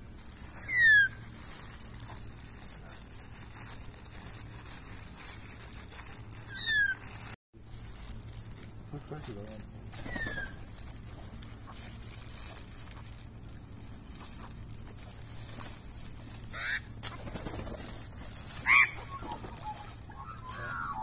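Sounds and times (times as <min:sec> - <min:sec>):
harsh bird calls: 0:00.6 - 0:01.2, 0:10.0 - 0:10.6, 0:16.5 - 0:17.0, 0:18.5 - 0:21.0.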